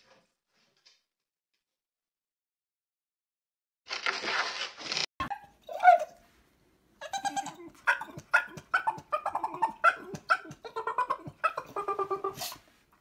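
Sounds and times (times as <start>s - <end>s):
dog yowling and grumbling: 5.3s - 6.2s, 7.0s - 12.6s.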